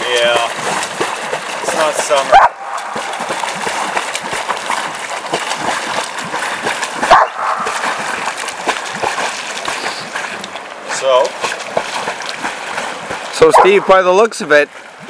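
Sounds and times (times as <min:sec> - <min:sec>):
river water running: 0:00.0 - 0:15.0
dog barking: 0:02.3 - 0:02.7, 0:07.1 - 0:07.8, 0:13.5 - 0:13.9.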